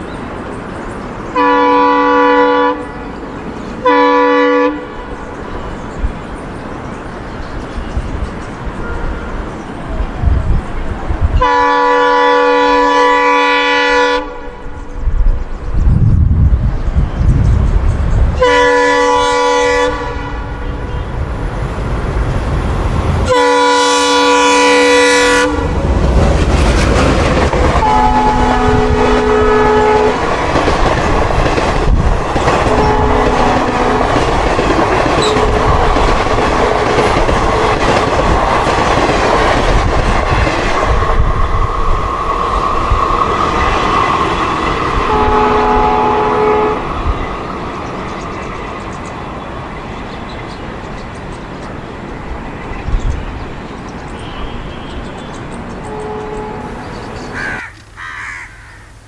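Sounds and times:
locomotive horn blasts: 0:01.4 - 0:03.0, 0:03.8 - 0:05.2, 0:08.8 - 0:09.4, 0:11.4 - 0:14.8, 0:18.4 - 0:21.2, 0:23.2 - 0:25.8, 0:27.6 - 0:30.4, 0:32.4 - 0:34.4, 0:35.0 - 0:37.2, 0:45.0 - 0:47.0, 0:54.2 - 0:56.8
train wheels clattering over rail joints: 0:25.8 - 0:27.9, 0:30.2 - 0:41.4.

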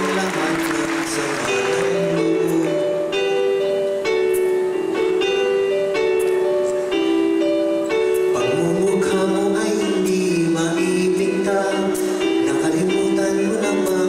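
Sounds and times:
man singing into a microphone: 0:00.0 - 0:03.5, 0:08.3 - 0:14.0
keyboard chords: 0:00.0 - 0:14.0.

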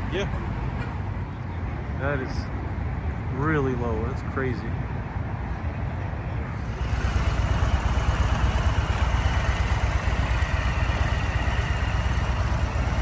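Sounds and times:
motorcycle engine idling: 0:06.6 - 0:13.0.

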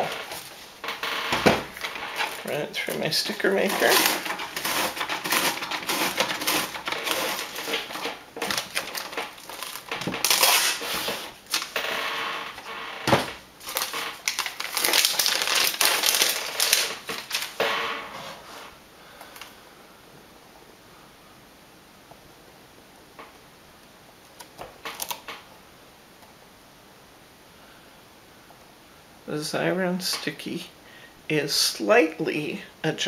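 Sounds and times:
paper crackling and rustling: 0:00.0 - 0:17.6.

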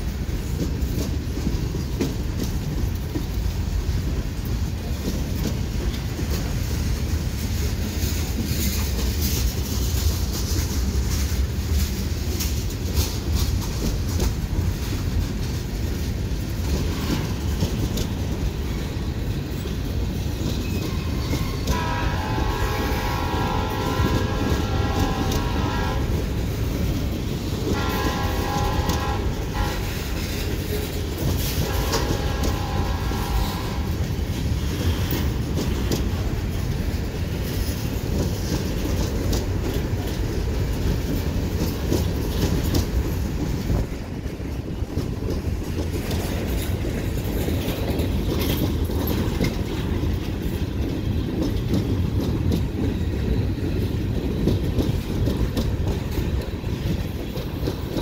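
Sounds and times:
freight train rumbling past: 0:00.0 - 0:58.0
locomotive horn blasts: 0:21.4 - 0:26.3, 0:27.6 - 0:30.4, 0:31.5 - 0:34.1.

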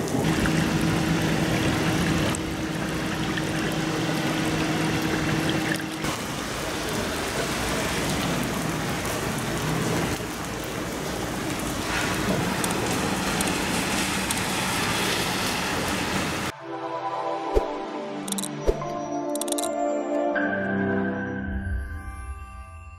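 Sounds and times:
heavy rain on pavement: 0:00.0 - 0:16.5
rainwater running along ground: 0:00.0 - 0:16.5.

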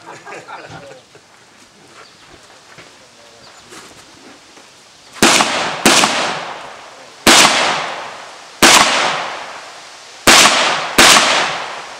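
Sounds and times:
rifle shots with echo: 0:05.2 - 0:11.9.

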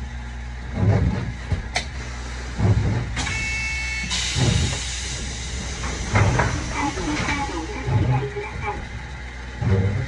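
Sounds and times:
low rumbles: 0:00.0 - 0:10.0
tram interior hum: 0:00.0 - 0:10.0
hiss: 0:04.1 - 0:07.9.

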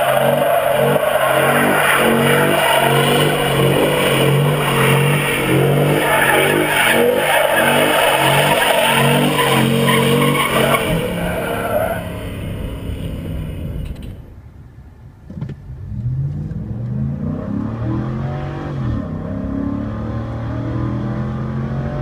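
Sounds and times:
truck engine revving hard: 0:00.0 - 0:13.9, 0:16.6 - 0:22.0
tyres squealing on asphalt: 0:00.0 - 0:14.2.

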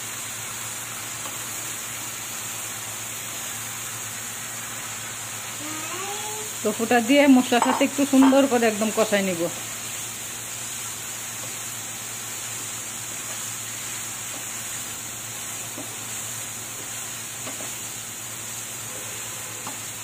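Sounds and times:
tofu sizzling in a pan: 0:00.0 - 0:20.0
spatula scraping and tapping pan: 0:07.5 - 0:08.5, 0:14.2 - 0:14.6, 0:15.7 - 0:16.0, 0:16.8 - 0:17.8.

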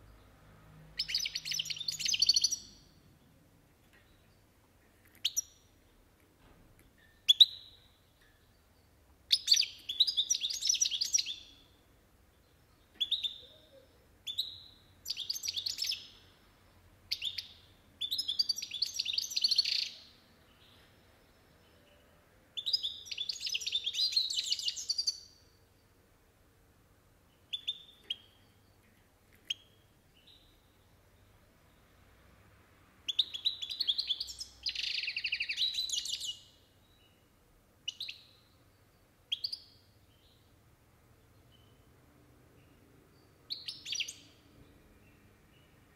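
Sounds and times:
bird chirping and twittering: 0:01.0 - 0:03.0, 0:04.0 - 0:06.0, 0:06.8 - 0:11.8, 0:12.4 - 0:22.0, 0:22.6 - 0:25.4, 0:27.3 - 0:31.8, 0:33.1 - 0:37.2, 0:37.8 - 0:40.5, 0:42.6 - 0:45.8.

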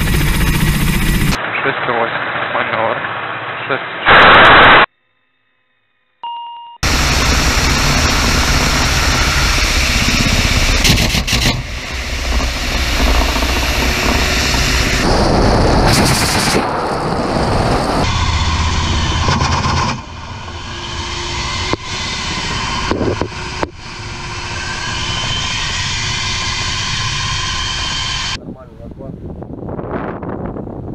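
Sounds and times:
helicopter engines and rotor: 0:00.0 - 0:04.0, 0:06.8 - 0:28.4
short electronic beep: 0:06.2 - 0:06.8
rockets firing roar: 0:06.8 - 0:28.4.

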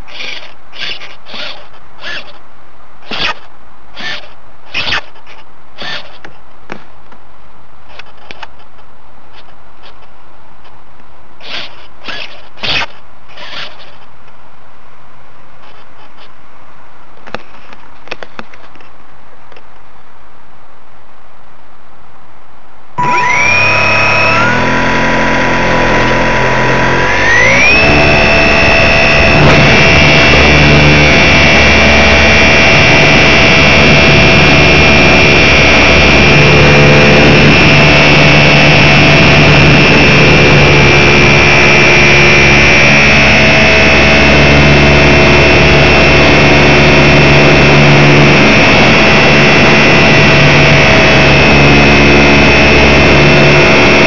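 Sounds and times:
model plane motor whining: 0:00.0 - 0:02.4, 0:03.0 - 0:05.2, 0:05.8 - 0:06.2, 0:11.4 - 0:14.0, 0:23.0 - 0:54.0
rustling and scraping handling noise: 0:15.6 - 0:16.4, 0:17.2 - 0:19.8.

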